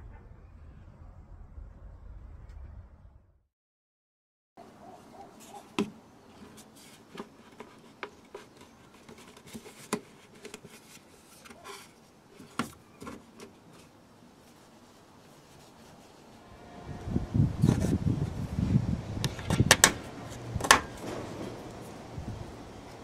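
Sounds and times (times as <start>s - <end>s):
plastic air duct clicks and knocks: 19.2s - 21.8s.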